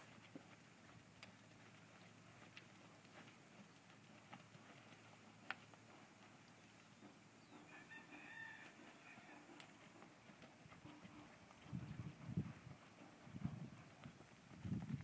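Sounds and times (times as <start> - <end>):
faint ticks: 0.2 - 6.9, 9.5 - 11.7
distant rooster crowing: 7.6 - 9.6.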